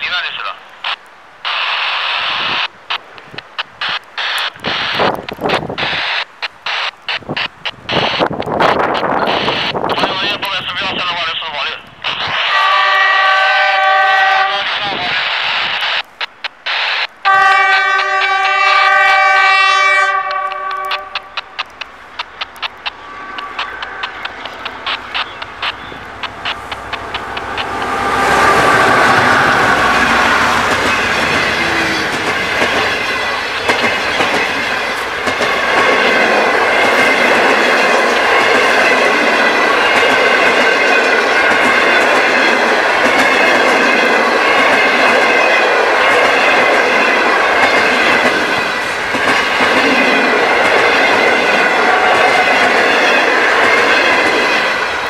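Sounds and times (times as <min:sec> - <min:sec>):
train wheels clattering over joints: 0:30.0 - 0:54.8.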